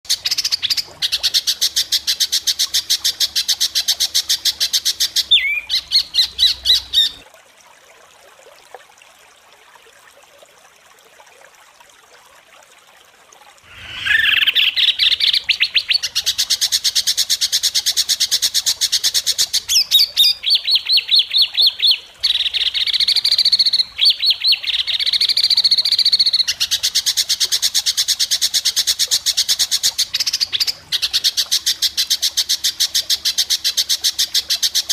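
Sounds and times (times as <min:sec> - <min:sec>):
songbird harsh rattling calls: 0:13.7 - 0:21.0.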